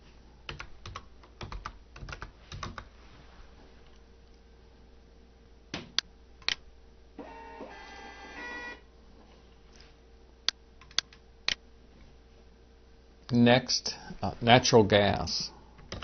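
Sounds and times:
label printer motor whirring: 7.2 - 8.7
sharp clicks: 10.5 - 11.6.

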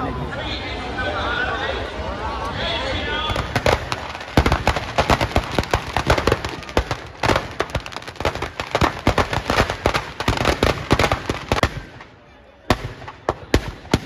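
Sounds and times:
firecrackers banging: 3.1 - 14.0.

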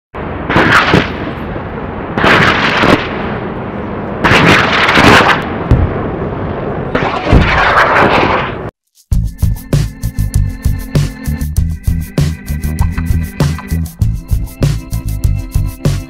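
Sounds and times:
deep booms: 5.6 - 6.2.

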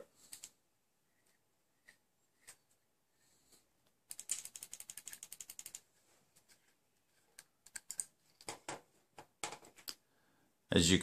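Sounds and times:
small metal clicks: 4.1 - 5.8, 7.3 - 8.6.

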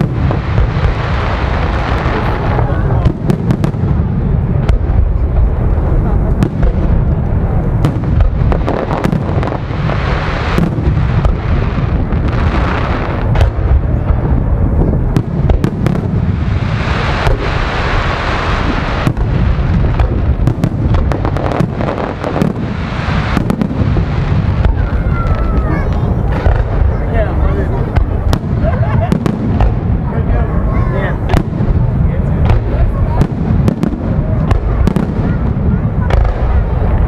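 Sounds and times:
firework shells booming: 0.0 - 37.0
hissing crackle: 0.0 - 37.0.

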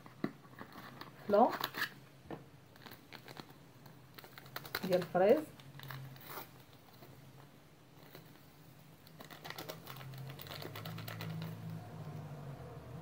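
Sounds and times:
paper sachet rustling: 2.7 - 7.1, 8.0 - 11.6.

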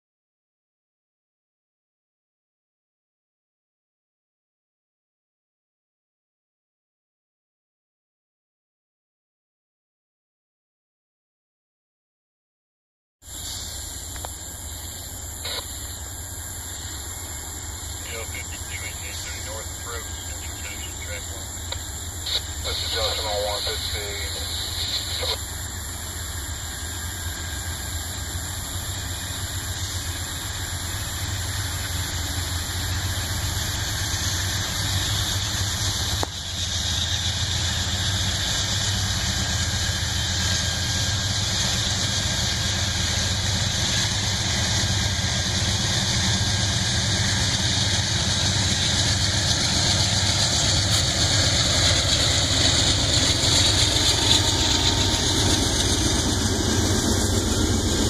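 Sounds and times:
steady high hiss: 13.3 - 44.5
diesel locomotives approaching: 13.3 - 58.0.

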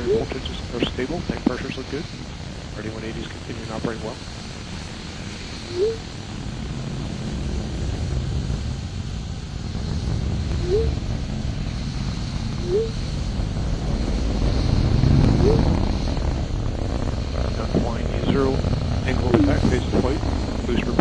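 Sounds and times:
rocket engine deep rumble: 0.0 - 21.0
short rising blips: 5.6 - 6.1, 10.5 - 11.0, 12.6 - 13.0, 15.2 - 15.8, 19.1 - 20.2.

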